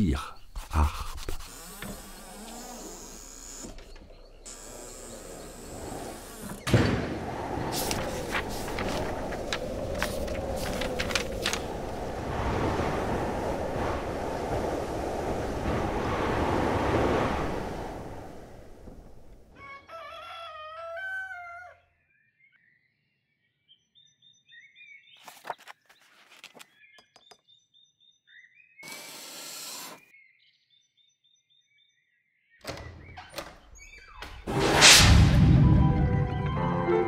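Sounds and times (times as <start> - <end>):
small birds chirping: 0.0 - 6.6
rushing noise: 6.2 - 19.4, 34.5 - 36.3
rooster crowing: 19.6 - 21.8.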